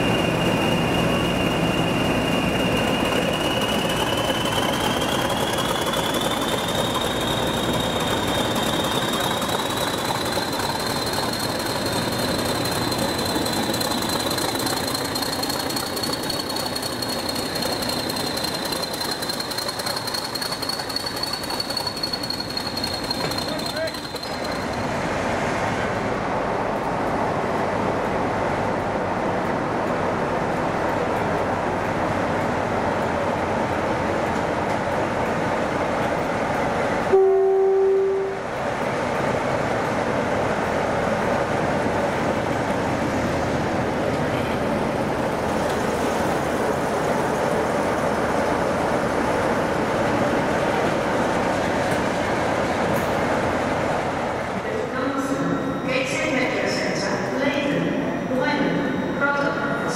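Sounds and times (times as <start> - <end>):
train rumbling on rails: 0.0 - 59.9
train horn blast: 37.1 - 38.5.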